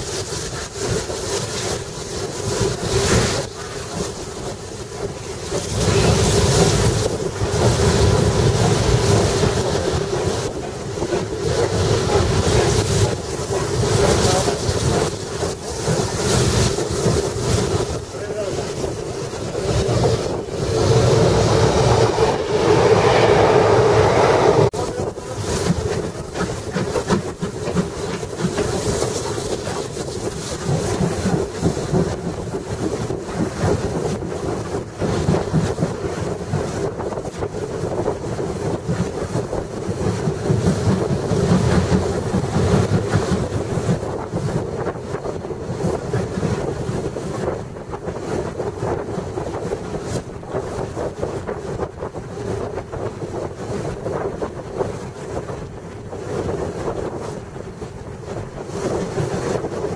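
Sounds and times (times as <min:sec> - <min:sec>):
passing train rushing: 0:00.0 - 0:29.8
steam train running: 0:00.0 - 0:59.9
wind on microphone: 0:00.0 - 0:59.9.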